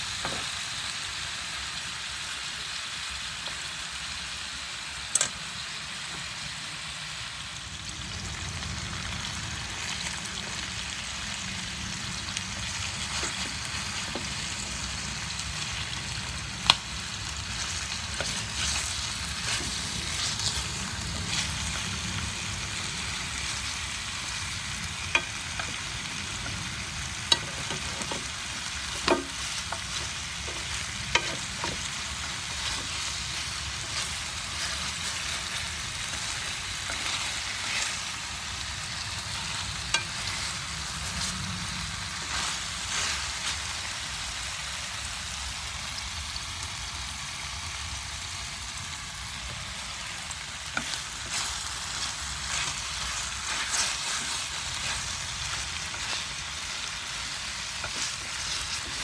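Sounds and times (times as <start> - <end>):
chicken sizzling in oil: 0.0 - 59.0
chopsticks clicking against pan: 29.0 - 31.9.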